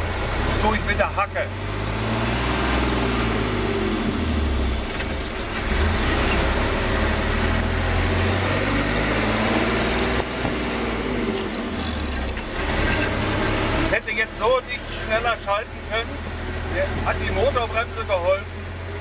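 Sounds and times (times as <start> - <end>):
gears shifting: 0.0 - 19.0
truck engine running: 0.0 - 19.0
engine brake: 11.2 - 13.2.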